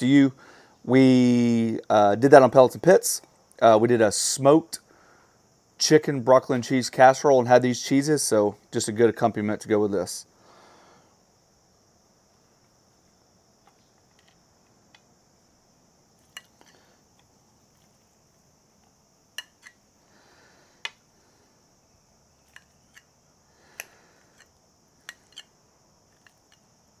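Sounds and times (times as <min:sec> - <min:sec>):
spoon scraping bowl: 0:24.3 - 0:25.5.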